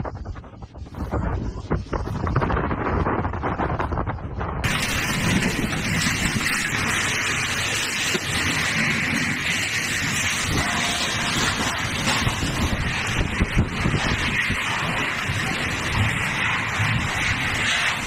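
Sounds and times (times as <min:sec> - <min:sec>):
storm wind gusting: 0:00.0 - 0:18.0
wind rumbling on microphone: 0:00.0 - 0:18.0
heavy rain: 0:04.6 - 0:18.0.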